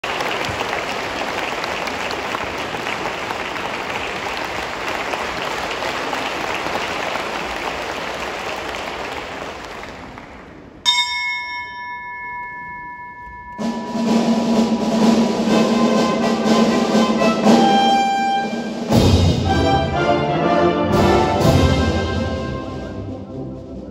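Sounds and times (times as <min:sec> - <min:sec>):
audience applauding: 0:00.0 - 0:10.7
orchestra playing: 0:13.6 - 0:23.9.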